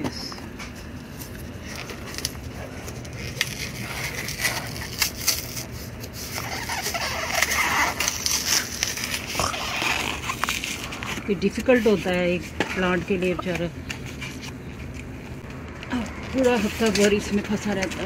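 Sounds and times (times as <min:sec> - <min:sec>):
cardboard tearing: 0:01.2 - 0:11.2.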